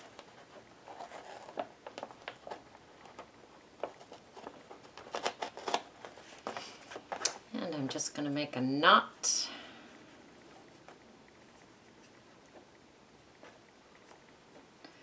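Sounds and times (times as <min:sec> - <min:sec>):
paper bag rustling and crinkling: 0:00.0 - 0:07.4.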